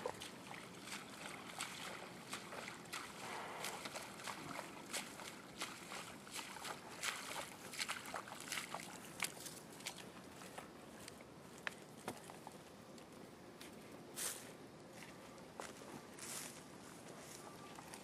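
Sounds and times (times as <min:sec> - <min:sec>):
footsteps splashing in muddy water: 0:00.0 - 0:12.5, 0:17.2 - 0:18.0.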